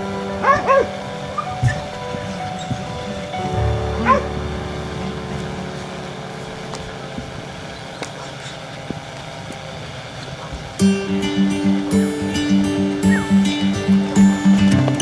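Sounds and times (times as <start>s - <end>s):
dog barking: 0.4s - 0.9s, 4.0s - 4.3s.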